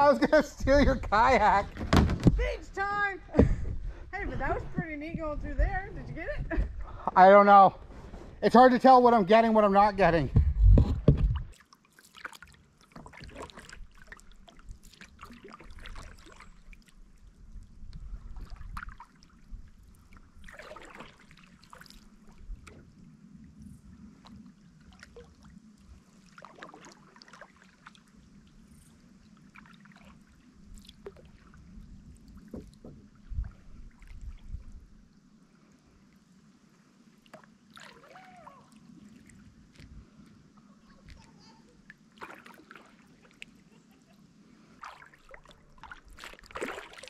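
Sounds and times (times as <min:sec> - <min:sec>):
kayak paddle splashing: 0:10.9 - 0:35.0, 0:37.0 - 0:47.0.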